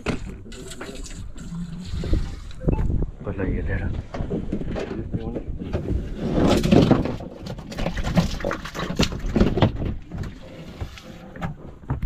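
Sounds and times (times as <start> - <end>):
fish knocking and splashing: 6.5 - 12.0.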